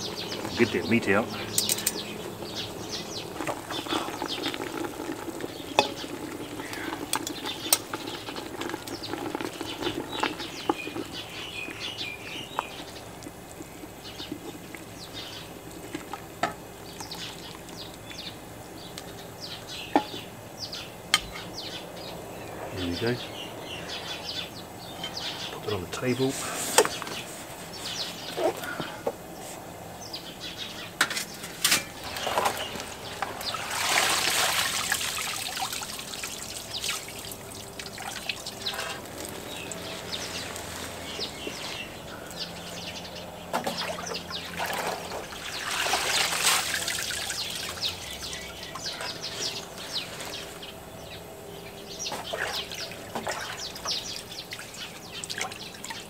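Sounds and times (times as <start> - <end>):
birds chirping: 0.0 - 56.0
water splashing and bubbling: 2.8 - 12.0, 32.0 - 40.4, 43.5 - 49.2, 52.1 - 56.0
leaves rustling: 31.2 - 43.2, 44.1 - 51.2.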